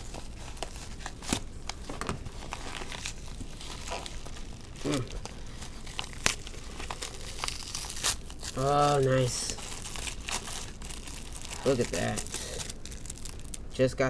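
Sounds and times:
padded envelope tearing and crinkling: 0.0 - 13.7.

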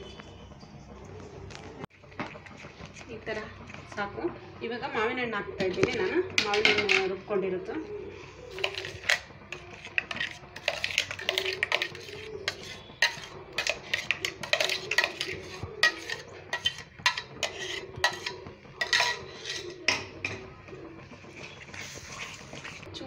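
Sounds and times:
wooden spatula scraping metal pan: 8.4 - 20.4, 21.4 - 22.9.

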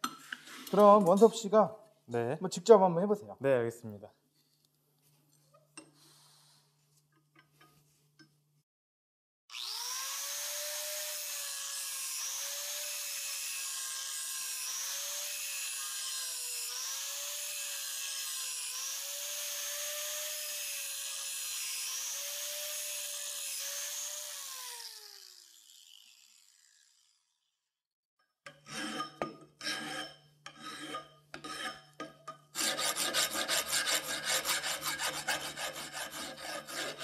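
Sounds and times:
angle grinder grinding steel: 9.5 - 27.4, 28.5 - 37.0.

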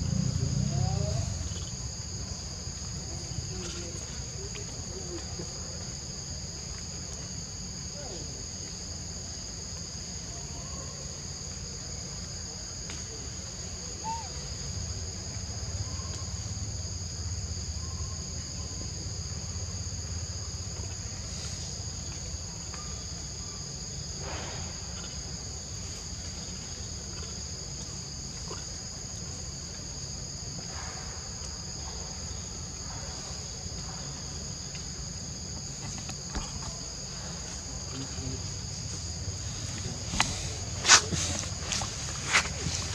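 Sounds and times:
low steady rumble: 0.0 - 6.0
high-pitched insect chorus: 0.0 - 42.9.

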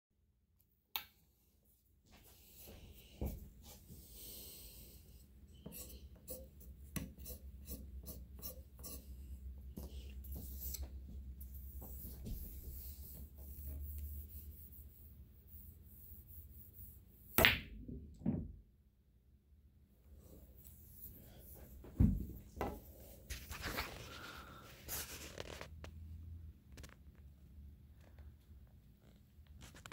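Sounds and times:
chalk scraping on cue tip: 5.5 - 17.2, 23.3 - 25.7.

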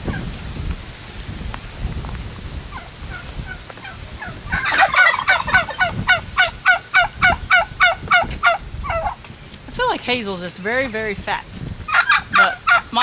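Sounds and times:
turkey calling: 2.7 - 9.2, 11.9 - 13.0.

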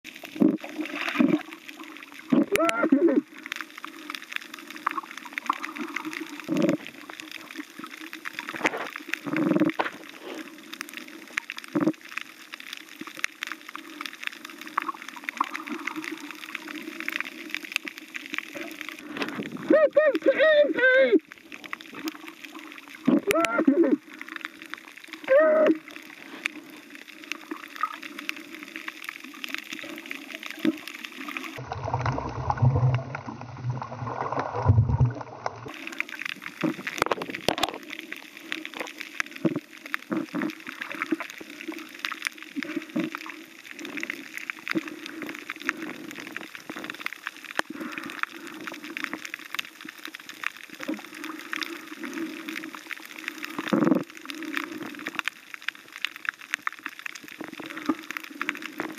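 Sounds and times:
underwater water noise: 0.0 - 58.9
clicks and crackles: 0.1 - 58.9
deep low rumble: 31.6 - 35.7.

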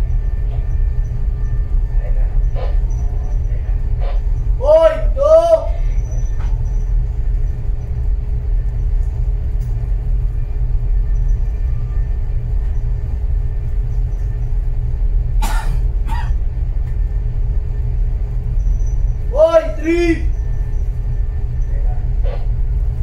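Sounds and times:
faint steady hum: 0.0 - 23.0
ship low rumble: 0.0 - 23.0.

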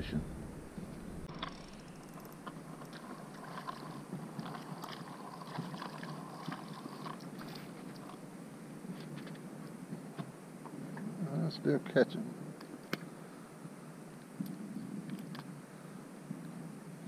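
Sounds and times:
fishing reel whirring and clicking: 1.3 - 8.2.

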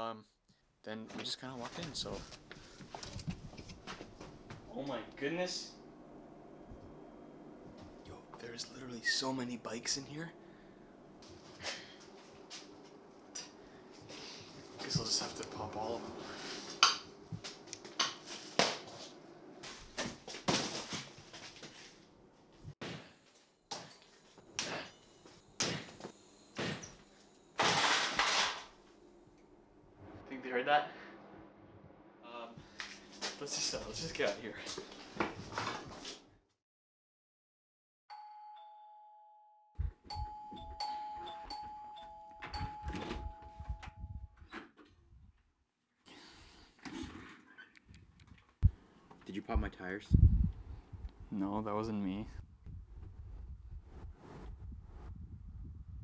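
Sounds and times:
two-note doorbell chime: 38.1 - 44.4.

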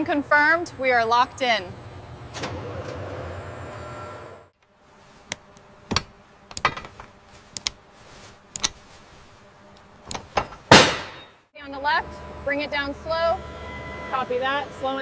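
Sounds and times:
factory hum: 0.0 - 15.0
metallic tool clicks and taps: 5.3 - 6.8, 7.5 - 7.8, 8.6 - 8.8.

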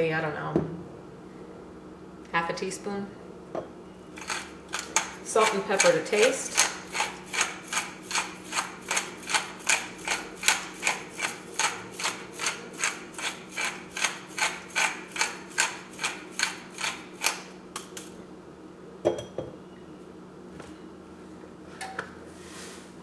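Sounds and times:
pepper mill grinding: 4.2 - 17.5.

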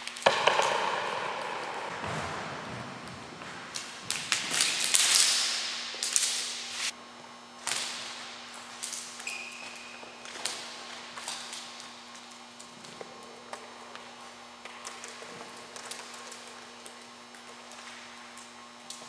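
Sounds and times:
brief squeak: 9.2 - 9.9.

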